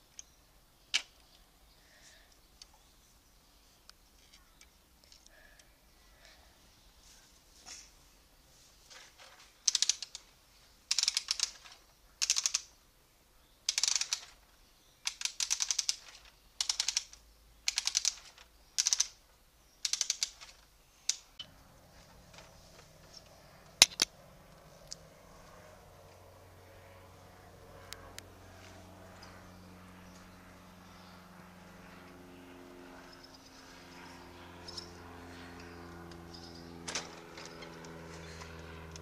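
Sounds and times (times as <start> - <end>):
plastic ratchet clicking: 9.7 - 10.2, 10.9 - 12.7, 13.7 - 14.4, 15.0 - 19.2, 19.8 - 20.5.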